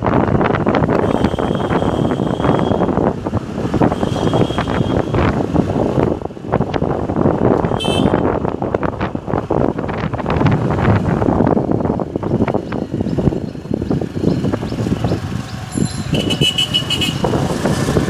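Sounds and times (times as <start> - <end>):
road and traffic noise: 0.0 - 18.0
wind buffeting microphone: 0.0 - 18.0.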